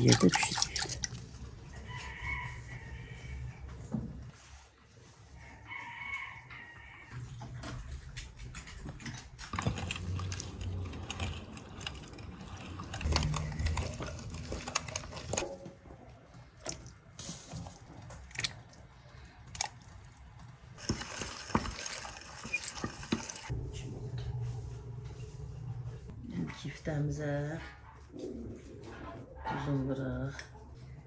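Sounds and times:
meat grinder clicking and rattling: 9.5s - 15.4s, 20.8s - 23.5s.

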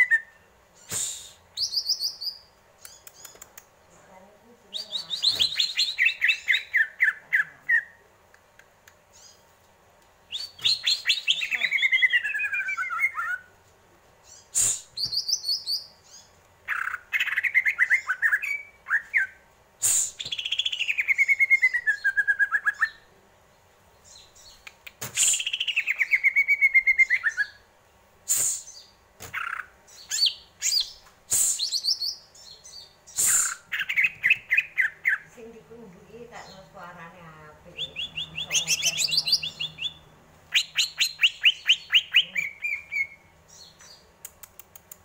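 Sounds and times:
bird chirps and clicks: 2.8s - 3.8s, 8.3s - 10.8s, 24.4s - 26.1s, 33.2s - 35.2s, 43.6s - 45.0s
bird trilling: 37.8s - 43.2s.

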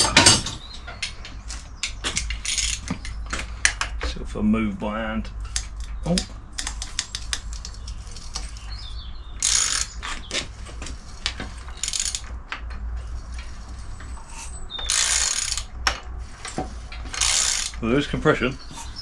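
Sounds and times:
socket ratchet clicking: 9.4s - 10.0s, 11.8s - 12.2s, 14.8s - 15.7s, 17.1s - 17.8s.

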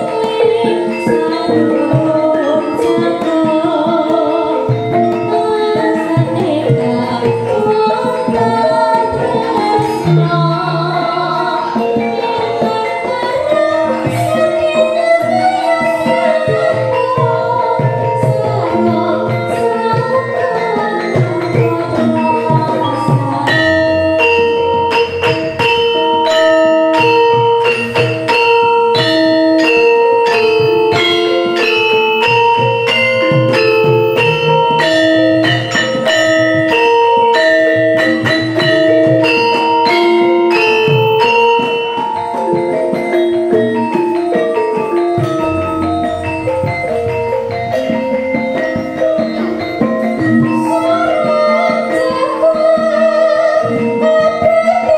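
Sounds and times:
woman singing: 0.0s - 25.3s, 48.6s - 54.9s
metallophones ringing melody: 0.0s - 54.9s.

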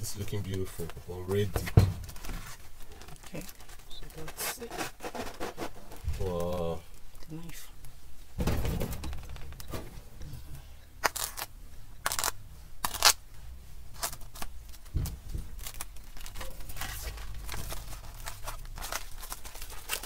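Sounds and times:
plastic film crinkling: 0.0s - 7.2s, 11.0s - 13.2s, 13.9s - 20.0s
cling film tearing: 11.0s - 13.2s, 15.6s - 20.0s.

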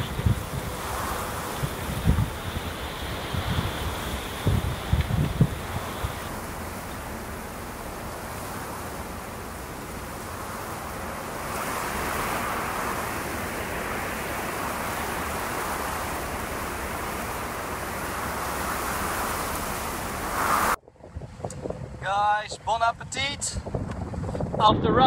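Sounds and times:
wind and sea rushing: 0.0s - 25.0s.

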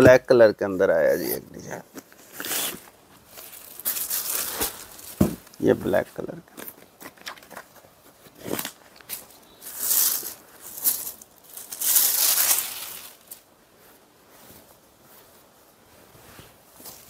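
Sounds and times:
silk fabric rustling: 2.2s - 5.5s, 9.7s - 17.0s.

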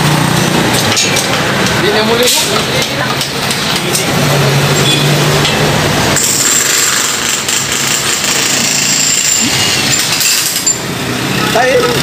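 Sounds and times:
jackhammers breaking concrete: 6.1s - 12.0s.

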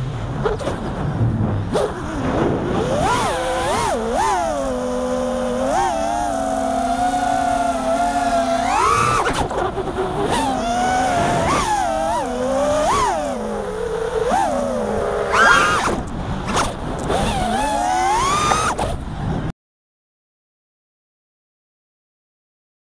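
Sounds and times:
drone motors whining: 0.4s - 19.1s.

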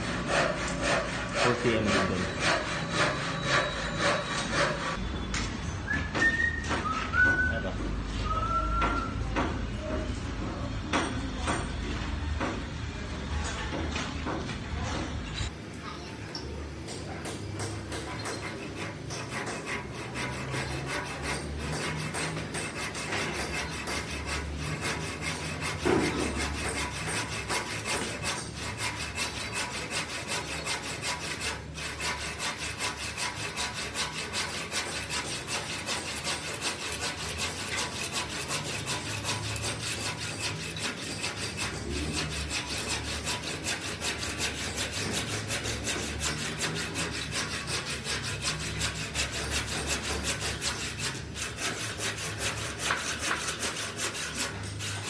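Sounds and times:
handsaw cutting wood: 0.0s - 5.0s, 17.0s - 55.0s
knock: 8.8s - 10.0s.

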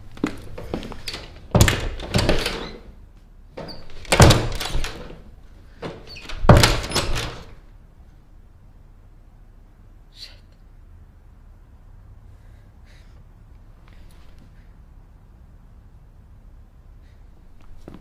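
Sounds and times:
heavy banging on a door: 0.2s - 2.8s, 3.6s - 5.2s, 5.8s - 7.6s.

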